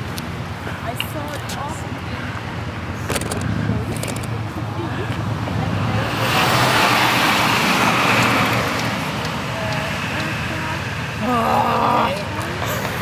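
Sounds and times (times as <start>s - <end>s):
vehicle passing close by: 3.2s - 11.2s.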